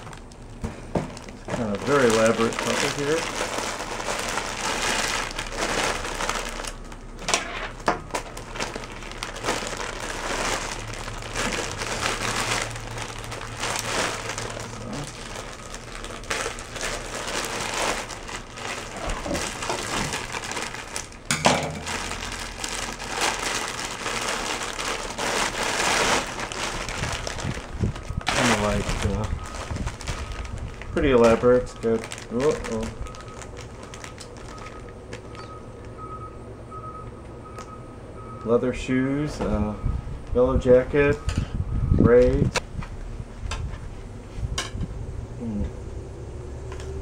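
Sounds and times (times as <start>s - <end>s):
plastic packaging crinkling: 0.0s - 36.1s.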